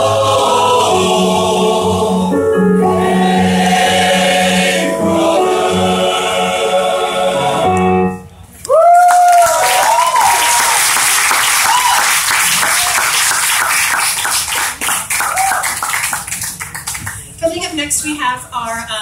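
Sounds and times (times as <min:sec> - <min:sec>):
person whooping: 0:08.6 - 0:10.8, 0:11.6 - 0:12.1, 0:15.2 - 0:15.8
audience clapping and cheering: 0:08.7 - 0:17.3.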